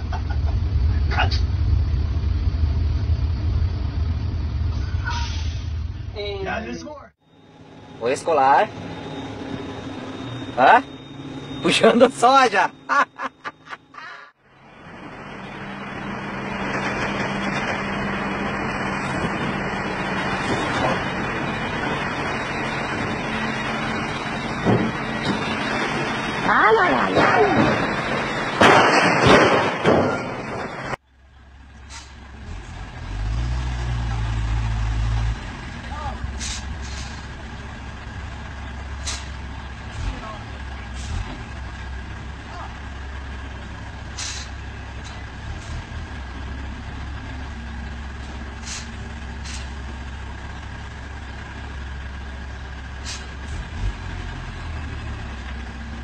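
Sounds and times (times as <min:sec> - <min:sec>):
diesel truck engine humming: 0:00.0 - 0:28.8, 0:29.8 - 0:56.0
air brake hisses: 0:05.0 - 0:05.8, 0:31.9 - 0:32.2, 0:36.4 - 0:37.3, 0:39.0 - 0:39.4, 0:44.2 - 0:44.6, 0:48.6 - 0:49.8, 0:53.0 - 0:53.4.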